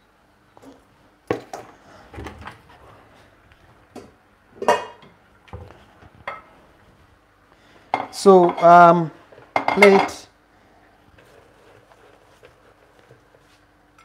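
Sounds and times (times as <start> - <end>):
dishes knocking and clinking: 3.9 - 6.5, 7.9 - 8.8, 9.4 - 10.2.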